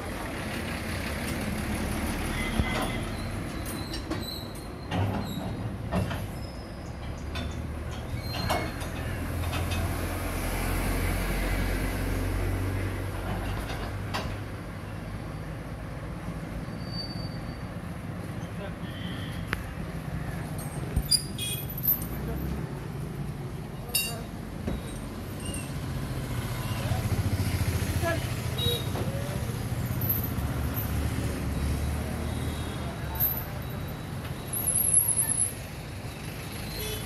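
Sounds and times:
short high squeaks: 2.4s - 5.6s, 8.1s - 8.9s, 16.7s - 17.8s, 20.7s - 22.1s, 24.7s - 25.9s.

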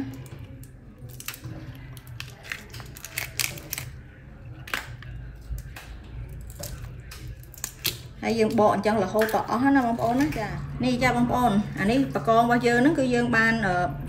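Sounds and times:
prawn shell crackling: 0.6s - 4.0s.

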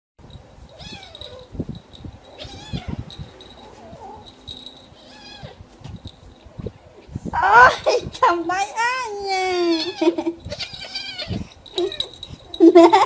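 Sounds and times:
cat meowing: 0.8s - 1.4s, 2.4s - 3.1s, 5.0s - 5.6s, 9.6s - 12.2s.

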